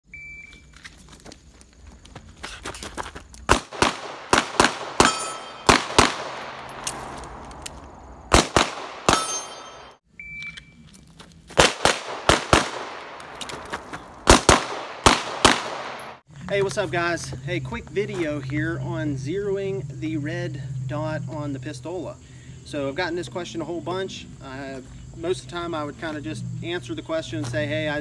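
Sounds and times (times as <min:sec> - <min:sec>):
pistol shots: 0:03.5 - 0:07.2, 0:08.3 - 0:10.0, 0:11.6 - 0:13.4, 0:14.2 - 0:16.2.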